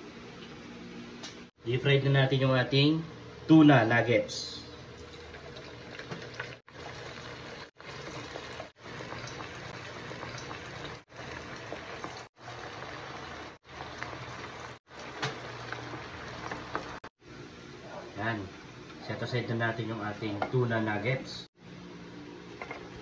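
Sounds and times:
food deep-frying in oil: 4.8 - 17.1.

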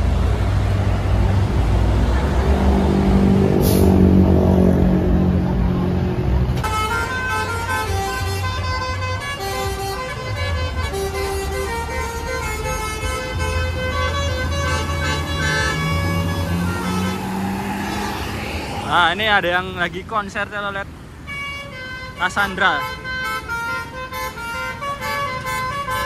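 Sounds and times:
bus engine running: 0.0 - 26.0
musical horn playing a tune: 6.6 - 18.2, 21.3 - 26.0.

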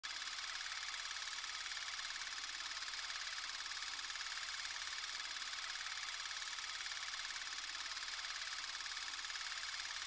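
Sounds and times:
film projector mechanism whirring: 0.0 - 10.0.

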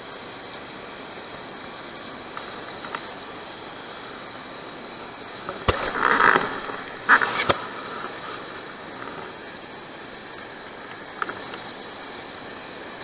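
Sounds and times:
flowing river water: 0.0 - 13.0
water splashing: 4.8 - 9.6.

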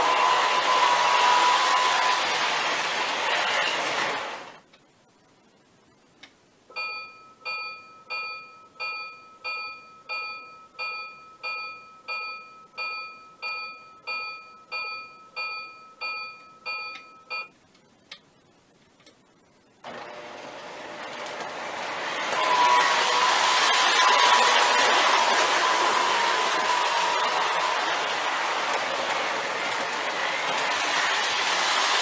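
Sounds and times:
electronic locomotive bell ringing: 0.0 - 2.2, 6.7 - 17.5, 22.3 - 31.2
steady rush of noise: 0.0 - 6.6, 22.0 - 32.0.

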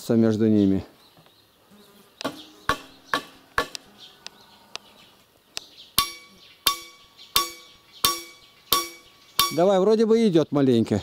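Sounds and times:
hammer striking wood with metallic ring: 2.3 - 3.8, 6.0 - 9.7.

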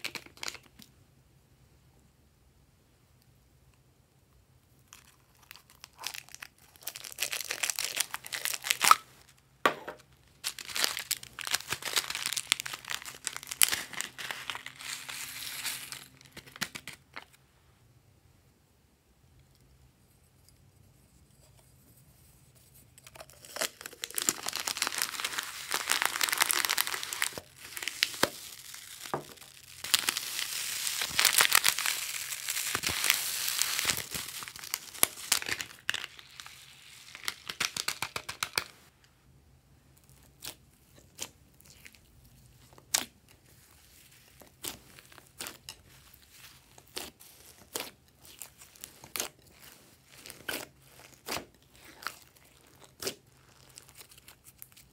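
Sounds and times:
plastic bag crinkling: 6.0 - 9.0, 10.3 - 17.1, 23.3 - 38.6.

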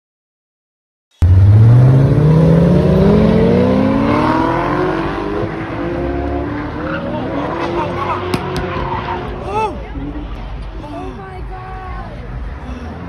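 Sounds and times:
car engine accelerating hard: 1.2 - 11.0.

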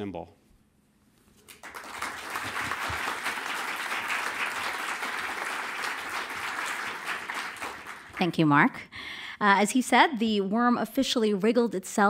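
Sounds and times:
audience applauding: 1.4 - 8.5.

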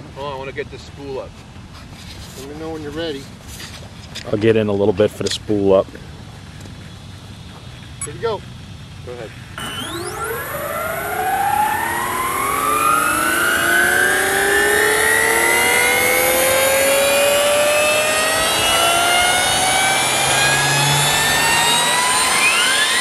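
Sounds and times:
model helicopter whine rising: 9.6 - 23.0.

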